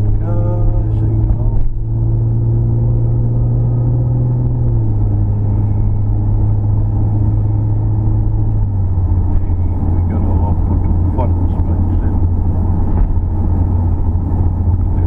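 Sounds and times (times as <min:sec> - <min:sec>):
car engine and road noise: 0:00.0 - 0:15.0.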